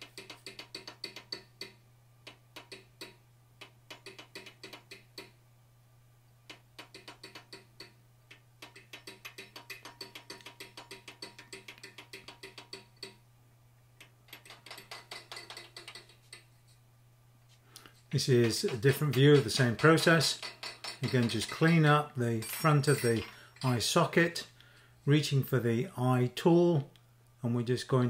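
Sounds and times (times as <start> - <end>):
hammer tapping on metal: 0.0 - 5.4, 6.5 - 13.2, 14.3 - 16.5, 18.4 - 23.8.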